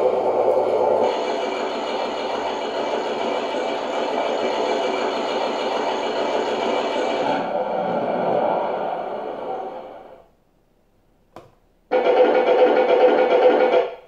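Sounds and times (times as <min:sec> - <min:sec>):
toy tank engine sound from speaker: 0:11.9 - 0:14.0.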